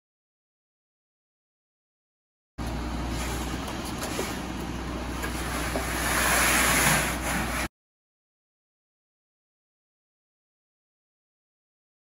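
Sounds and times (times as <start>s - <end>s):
diesel truck engine running: 2.6s - 7.7s
wet concrete sliding out: 3.1s - 7.7s.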